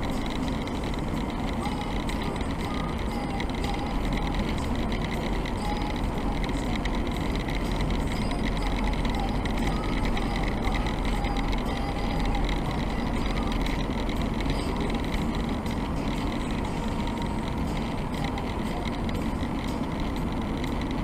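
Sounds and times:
car cabin road rumble: 0.0 - 21.0.

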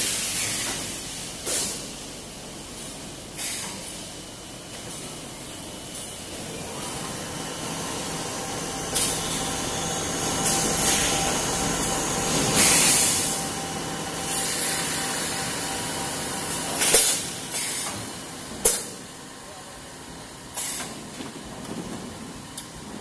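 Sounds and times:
machine hum: 4.4 - 20.6
compressed air blasts hissing: 7.6 - 18.1.

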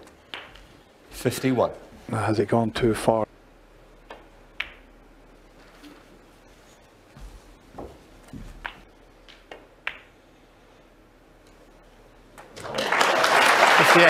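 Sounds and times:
snooker balls clicking: 0.0 - 0.9, 4.0 - 6.2, 7.8 - 10.3
balls knocking on table: 4.0 - 4.9, 7.8 - 10.2
audience applause: 12.6 - 14.0.

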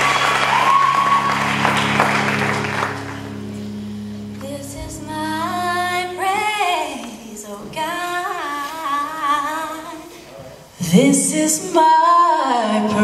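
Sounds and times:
applause: 0.0 - 3.3
low drone: 0.0 - 6.7
woman singing gospel: 4.4 - 10.1, 10.8 - 13.0.

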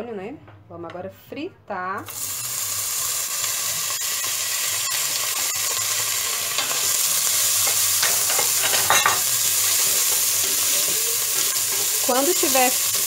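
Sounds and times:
sausage sizzling in hot oil: 2.0 - 13.0
spatula scraping a pan: 6.6 - 13.0.

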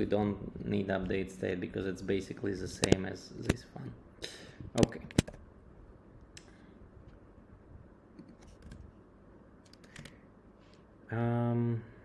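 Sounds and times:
keyboard typing clicks: 9.6 - 10.2.

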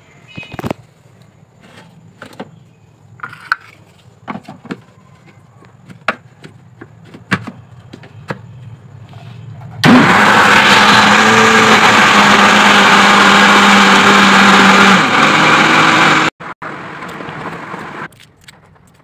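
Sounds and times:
blender motor running: 9.8 - 18.1.

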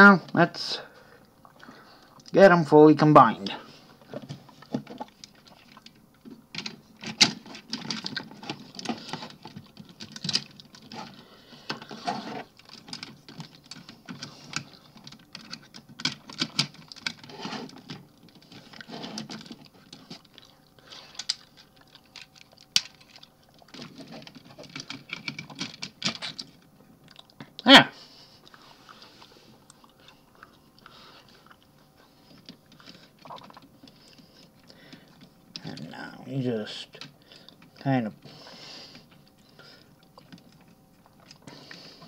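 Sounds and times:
plastic parts clicking and rattling: 4.0 - 26.8, 39.0 - 42.0.

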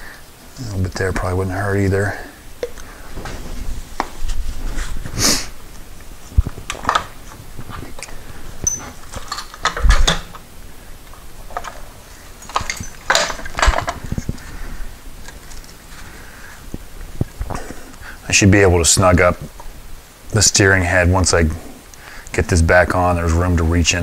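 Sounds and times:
metal parts clinking and scraping: 8.6 - 10.4, 11.5 - 14.2.

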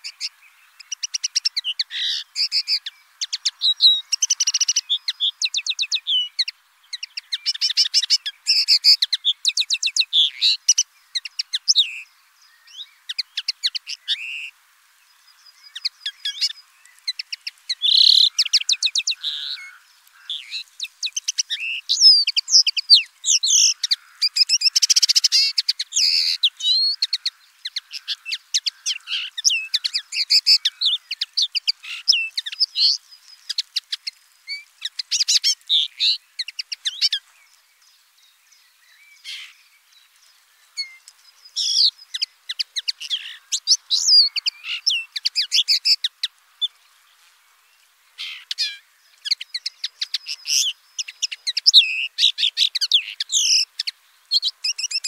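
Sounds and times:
linnet singing: 0.0 - 14.5, 15.2 - 37.6, 38.2 - 46.8, 48.2 - 55.0.

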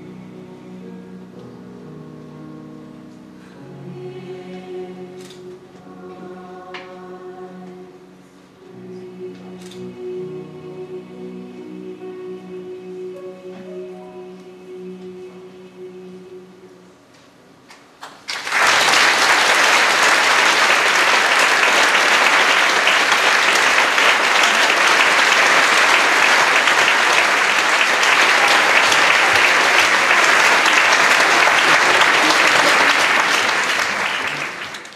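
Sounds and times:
choir holding a chord: 0.0 - 1.5, 3.4 - 17.2, 19.1 - 34.8
audience applauding: 18.0 - 34.9.

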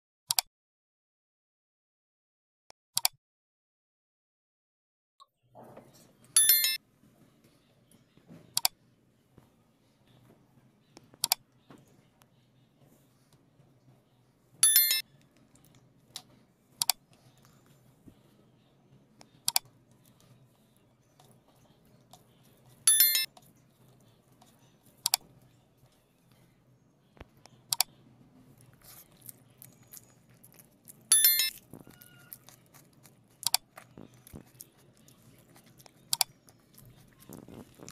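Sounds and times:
notification bell chimes: 6.4 - 6.8, 14.6 - 15.0, 22.9 - 23.3, 31.1 - 31.5.

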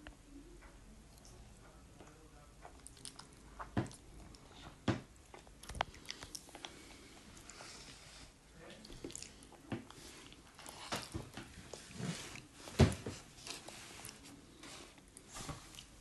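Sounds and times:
child chewing: 1.1 - 16.0.

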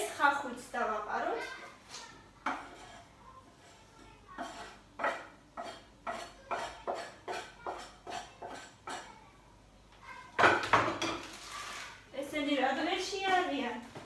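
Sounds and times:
knife scraping cutting board: 2.4 - 3.8, 4.4 - 9.1, 11.2 - 12.0.

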